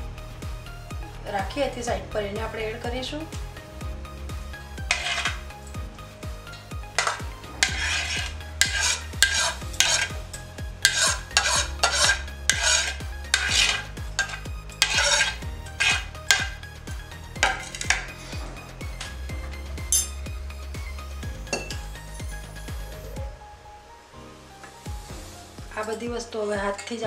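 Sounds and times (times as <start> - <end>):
faint background music: 0.0 - 27.0
metal spoon scraping ceramic plate: 4.9 - 5.5, 7.0 - 16.6, 17.4 - 18.4.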